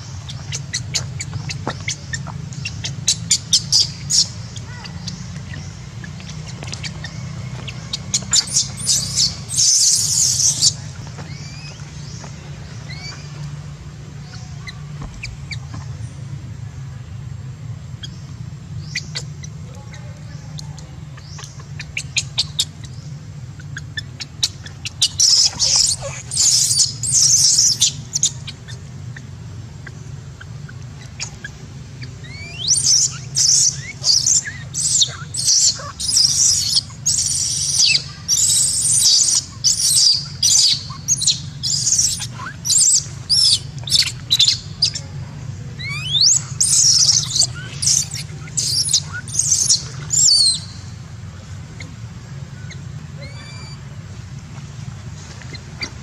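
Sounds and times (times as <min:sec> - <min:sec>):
baby monkey shrill distress cries: 0:00.3 - 0:05.7, 0:07.9 - 0:11.8, 0:12.9 - 0:13.3, 0:24.4 - 0:28.5, 0:32.2 - 0:45.0, 0:45.8 - 0:50.9, 0:52.7 - 0:53.8.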